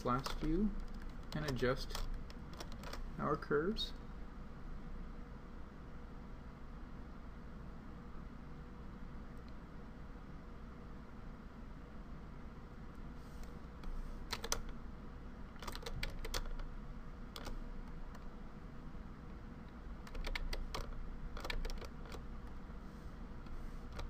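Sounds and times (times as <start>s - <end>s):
low steady hum: 0.0s - 24.0s
keyboard and mouse clicking: 0.2s - 3.0s, 14.3s - 14.8s, 15.6s - 16.7s, 17.4s - 18.3s, 20.0s - 22.6s, 23.4s - 24.0s.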